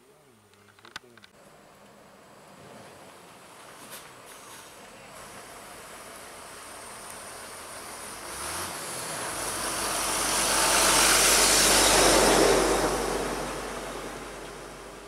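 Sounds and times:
vehicle driving past: 0:04.5 - 0:15.0.

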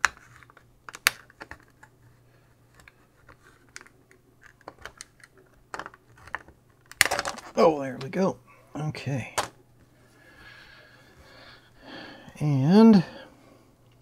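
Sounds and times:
plastic case clicks and snaps: 0:00.9 - 0:01.8.

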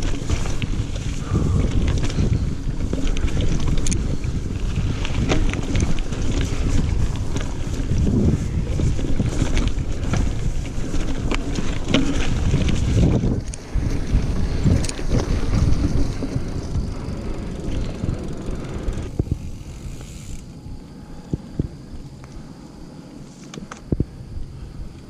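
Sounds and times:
wind buffeting microphone: 0:00.0 - 0:22.6, 0:23.8 - 0:25.0
bike clicks and rattles: 0:00.0 - 0:24.1
bike tyres rumbling on dirt: 0:00.0 - 0:25.0.

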